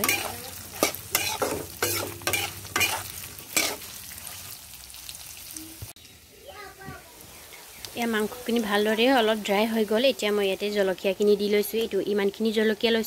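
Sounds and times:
metal spatula scraping: 0.0s - 4.4s
oil sizzling: 0.0s - 13.0s.

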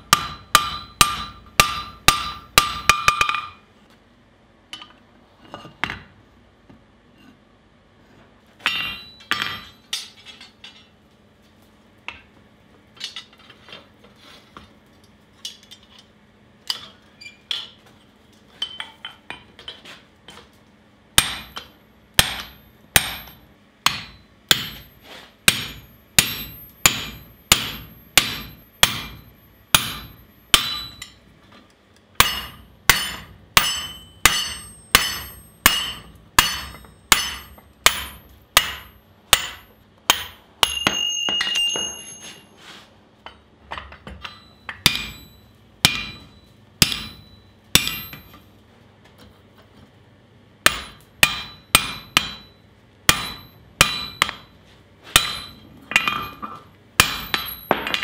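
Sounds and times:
hammer ringing on hot steel: 0.0s - 3.6s, 8.6s - 10.0s, 21.2s - 31.2s, 32.2s - 42.6s, 44.1s - 48.5s, 50.6s - 58.0s
metal scraping and ringing: 40.6s - 42.8s, 44.2s - 48.4s.

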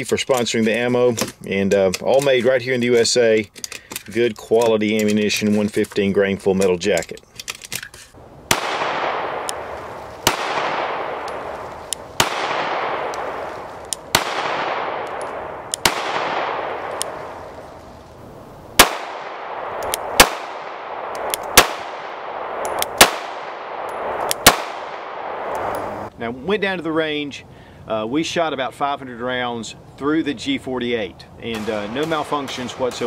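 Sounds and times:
pistol shots echoing: 8.5s - 17.6s, 18.6s - 25.8s, 31.5s - 33.0s.

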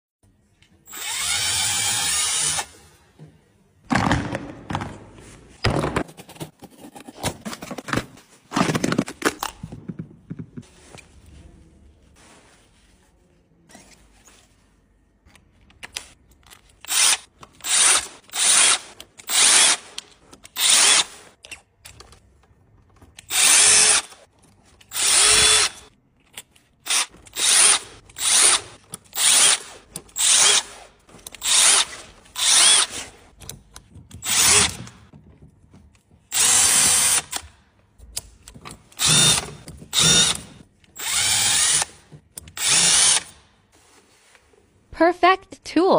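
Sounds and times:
cordless driver spinning: 0.9s - 2.7s, 38.9s - 43.3s
faint handling sounds: 9.5s - 16.8s, 43.6s - 45.0s.

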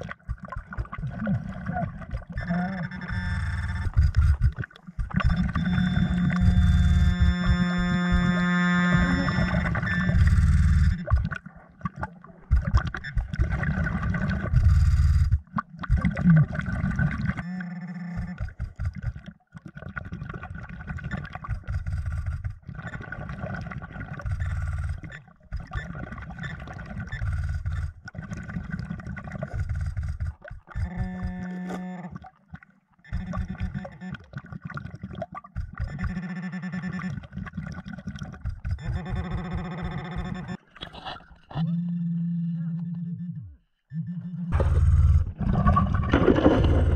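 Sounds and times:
muffled underwater water movement: 0.0s - 46.9s
short buzzing tone: 2.4s - 4.5s, 5.2s - 11.2s, 17.4s - 18.6s, 29.6s - 32.2s, 33.1s - 34.2s, 35.8s - 37.2s, 38.7s - 40.6s.

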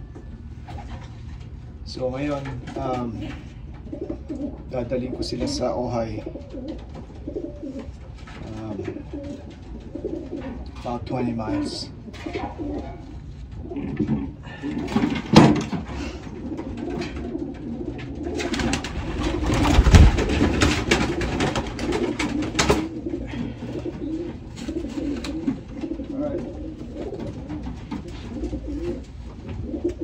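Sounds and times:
pigeons cooing: 0.0s - 30.0s
clattering and rustling: 12.1s - 30.0s.

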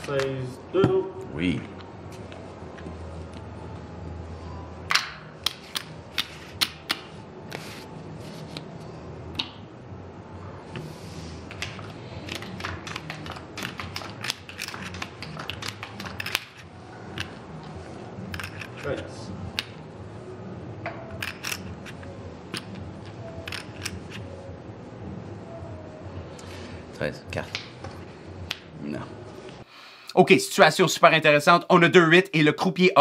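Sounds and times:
casino chips clicking together: 11.6s - 16.6s, 18.3s - 18.9s, 21.2s - 22.8s, 23.4s - 24.2s.

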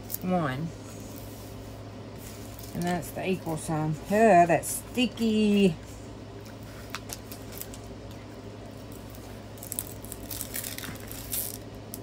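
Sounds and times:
low steady hum: 0.0s - 12.0s
plastic film crinkling: 6.8s - 12.0s.

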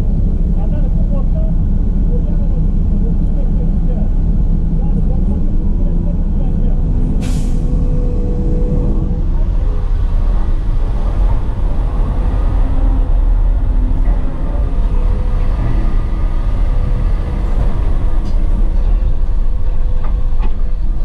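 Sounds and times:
excavator engine and hydraulic drone: 0.0s - 21.0s.

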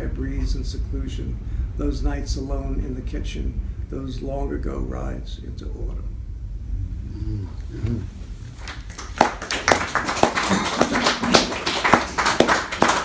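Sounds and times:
small audience applauding: 8.5s - 13.0s.

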